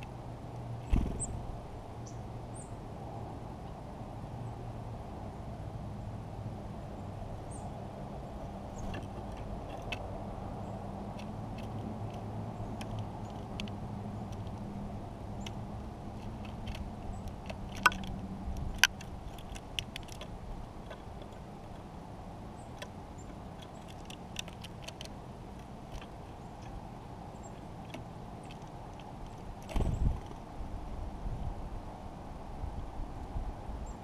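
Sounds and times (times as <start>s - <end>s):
bird pecking seed on wooden log: 8.7s - 30.4s.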